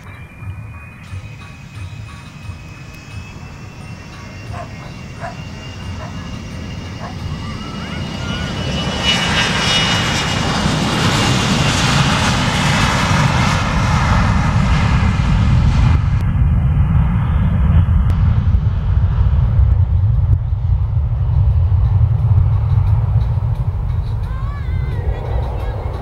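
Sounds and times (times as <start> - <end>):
jet engines at takeoff power: 0.0 - 26.0.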